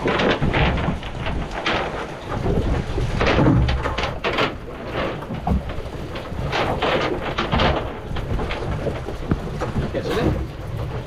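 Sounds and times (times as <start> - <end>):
low wind rumble: 0.0 - 11.0.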